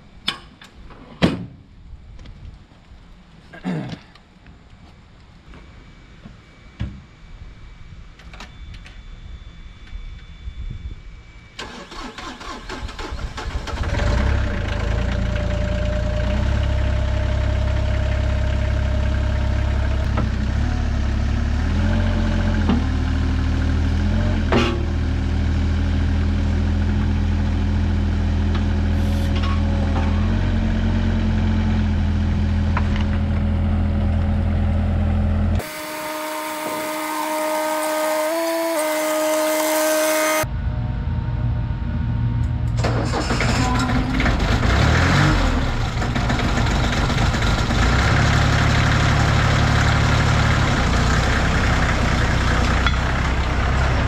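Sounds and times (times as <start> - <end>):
starter cranking diesel engine: 11.6 - 20.1, 42.8 - 54.0
excavator diesel engine running: 11.6 - 54.0.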